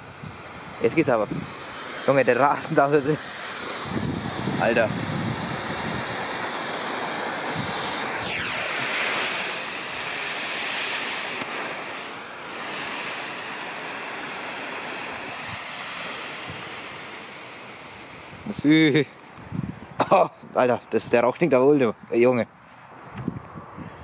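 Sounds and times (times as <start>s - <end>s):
smoke bomb hissing: 0.0s - 19.2s.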